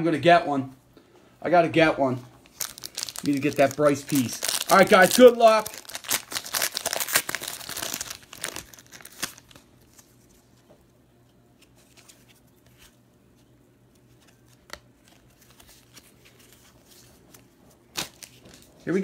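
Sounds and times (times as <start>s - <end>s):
plastic wrapping tearing and crinkling: 2.4s - 10.1s, 17.9s - 18.8s.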